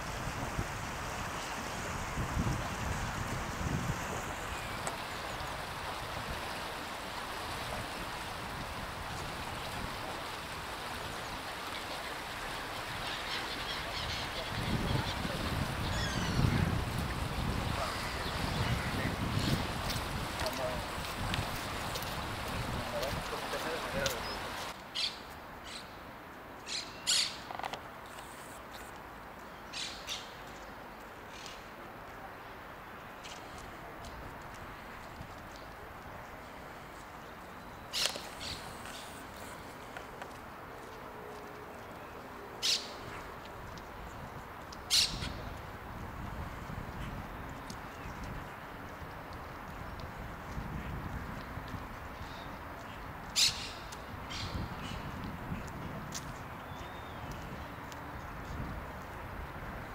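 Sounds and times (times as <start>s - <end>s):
fountain water splashing: 0.0s - 24.8s, 31.7s - 59.9s.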